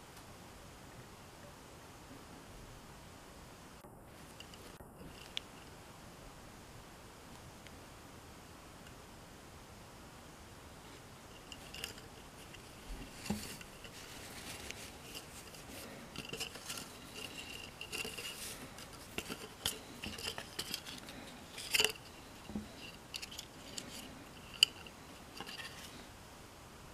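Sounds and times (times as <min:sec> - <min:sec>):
cloth and card rustling: 0:10.9 - 0:26.1.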